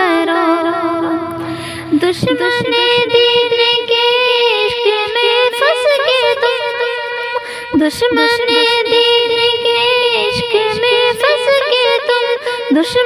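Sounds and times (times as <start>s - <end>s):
steady drone tone: 0.0s - 7.4s
girl singing wordless vocals: 0.0s - 13.0s.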